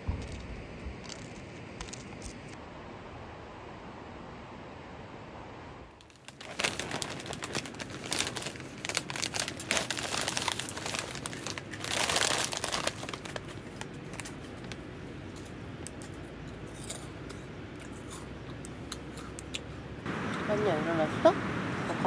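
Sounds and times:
plastic snack bag crinkling: 6.0s - 14.8s.

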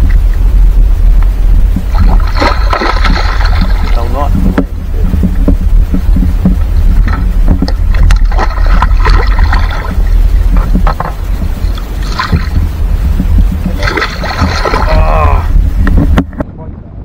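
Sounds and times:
wind rumbling on microphone: 0.0s - 17.0s
water sloshing against boat: 1.2s - 16.4s
short splashes and knocks: 1.8s - 5.6s, 6.2s - 15.1s.

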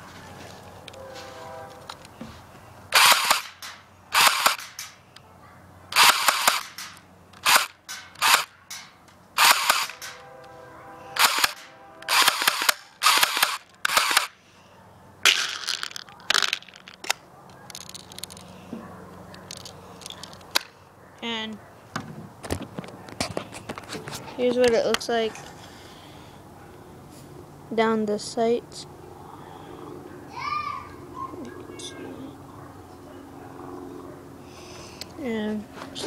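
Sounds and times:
airsoft gun firing bursts: 2.9s - 4.9s, 5.9s - 8.6s, 9.4s - 10.2s, 11.2s - 14.4s.

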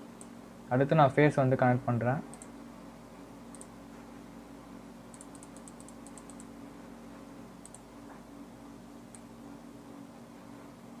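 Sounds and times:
low electrical hum: 0.0s - 11.0s
mouse and keyboard clicking: 5.1s - 6.5s, 7.6s - 7.8s.

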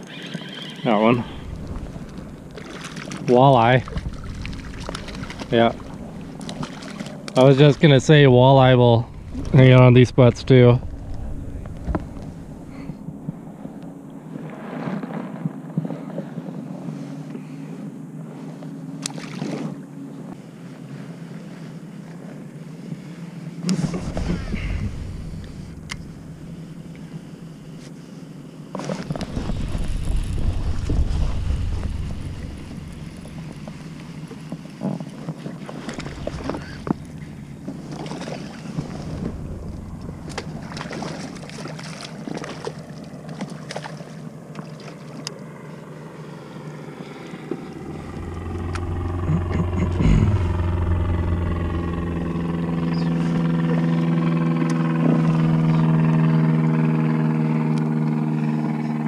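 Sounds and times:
steady engine hum: 0.8s - 59.0s
wind rumble on microphone: 1.0s - 18.6s, 23.7s - 27.8s, 29.0s - 43.2s, 47.4s - 59.0s.

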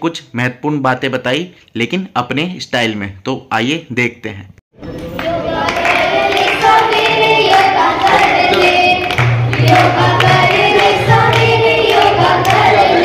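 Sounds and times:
girls singing in unison: 4.8s - 13.0s
hands clapping: 5.0s - 13.0s.

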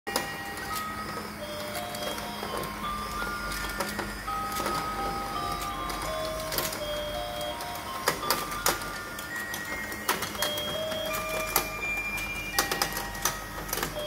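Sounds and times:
toy motor whirring: 0.1s - 14.0s.

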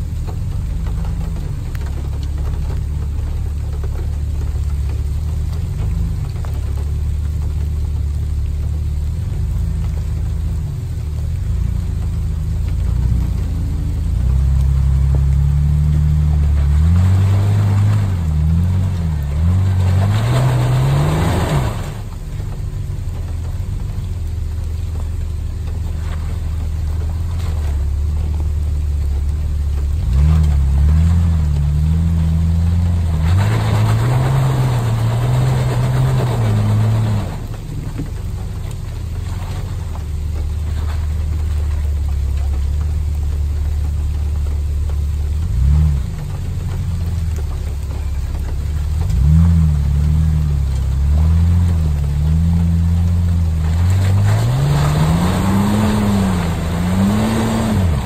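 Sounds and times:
off-road engine revving under load: 0.0s - 58.0s.

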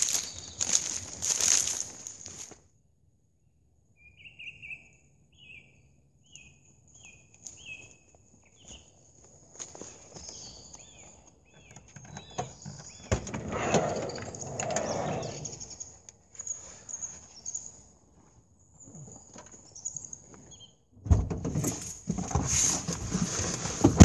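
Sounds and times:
footsteps on gravel: 0.0s - 2.6s, 7.4s - 11.2s
knocks and rustling of gear: 0.0s - 2.6s
sliding van door opening: 13.1s - 15.5s.

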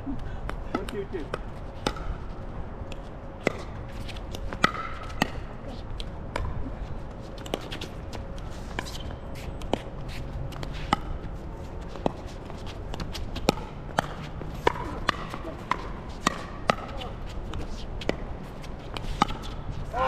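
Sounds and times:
shoes scuffling on court: 3.4s - 20.0s
ball bouncing on hard court: 12.9s - 17.2s.

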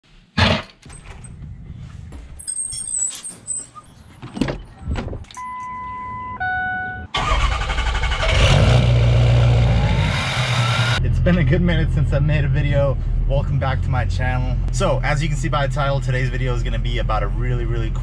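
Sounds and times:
truck engine starting and running: 2.5s - 18.0s
electronic beep: 5.4s - 7.1s.

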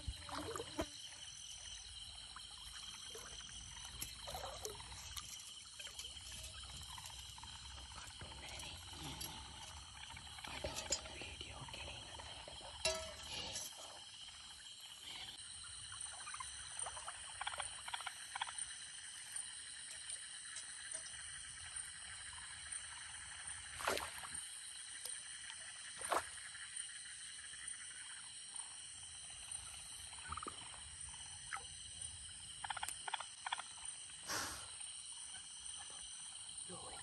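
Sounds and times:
frogs calling: 0.0s - 37.0s
splashes in shallow water: 23.7s - 24.4s.

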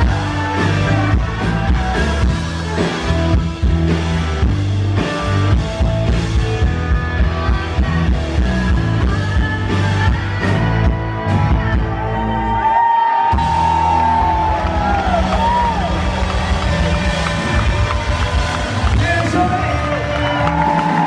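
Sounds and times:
crowd whooping: 0.0s - 3.3s, 11.2s - 21.0s
live rock band playing: 0.0s - 21.0s.

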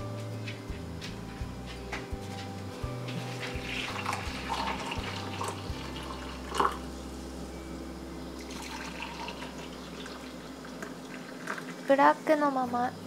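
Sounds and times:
coffee pouring into mugs: 3.4s - 6.9s, 8.4s - 12.0s.

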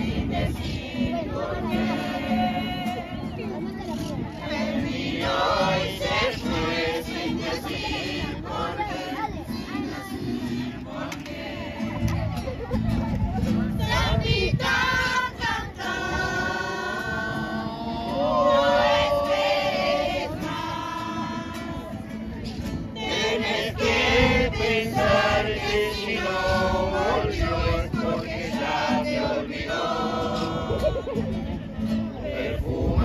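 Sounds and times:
mixed choir singing: 0.0s - 12.7s, 13.4s - 33.0s
acoustic guitar: 0.0s - 33.0s.

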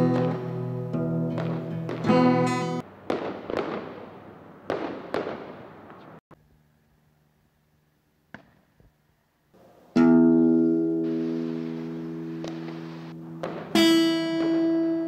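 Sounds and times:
echoing fireworks bangs: 0.0s - 6.2s, 11.0s - 15.0s.

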